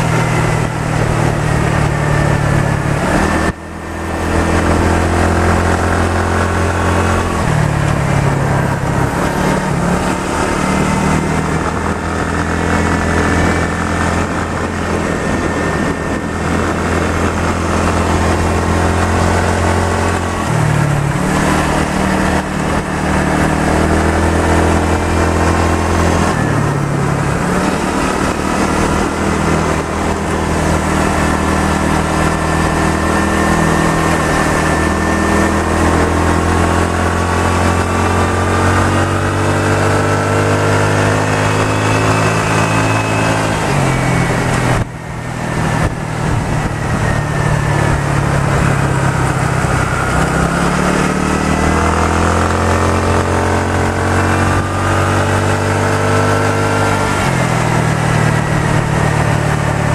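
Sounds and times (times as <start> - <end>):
wind rushing: 0.0 - 36.1
motorcycle engine running: 0.0 - 59.9.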